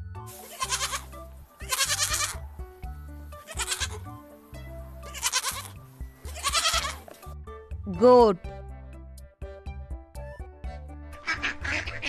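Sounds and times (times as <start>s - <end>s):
light background music: 0.0s - 12.0s
goat bleating: 0.4s - 2.4s, 3.4s - 4.1s, 5.0s - 7.1s.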